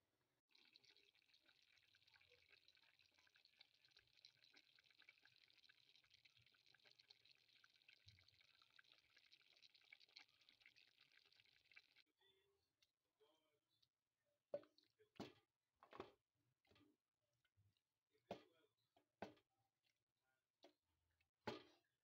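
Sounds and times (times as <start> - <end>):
pot simmering with bubbles popping: 0.4 - 12.2.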